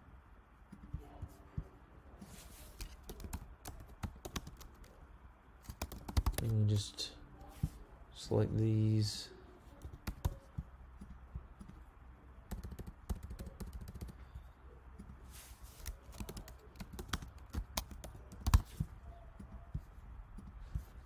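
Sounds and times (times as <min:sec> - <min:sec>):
computer keyboard typing: 0:02.8 - 0:05.0, 0:05.6 - 0:06.6, 0:09.8 - 0:11.8, 0:12.5 - 0:14.4, 0:15.8 - 0:20.9.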